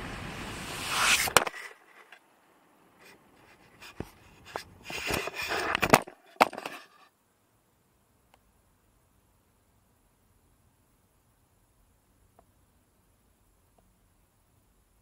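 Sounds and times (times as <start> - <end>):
wind and road noise: 0.0 - 6.7.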